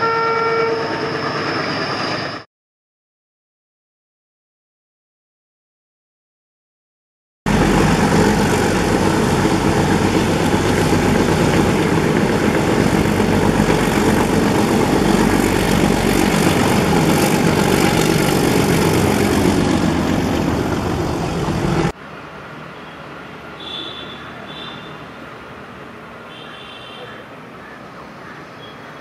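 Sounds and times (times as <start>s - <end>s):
diesel locomotive engine roaring: 0.0s - 2.5s, 7.5s - 29.0s.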